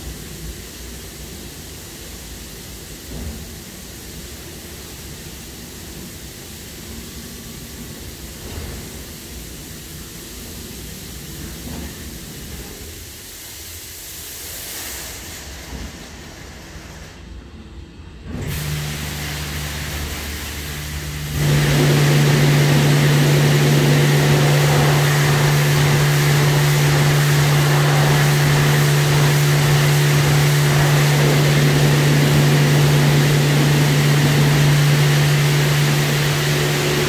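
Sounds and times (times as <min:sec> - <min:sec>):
car wash rushing sound: 0:18.2 - 0:37.0
motor hum: 0:18.4 - 0:37.0.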